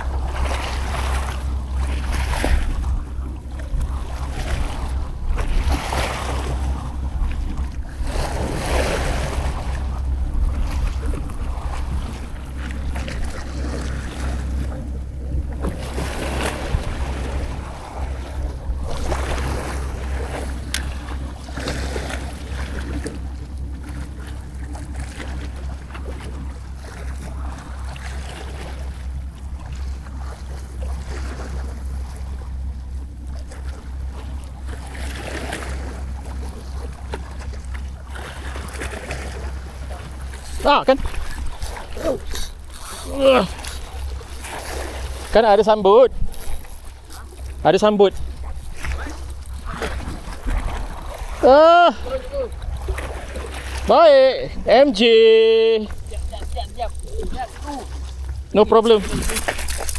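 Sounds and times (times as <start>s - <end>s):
wind rumble on microphone: 0.0s - 53.8s
small waves splashing on rocks: 3.6s - 9.8s, 38.1s - 59.9s.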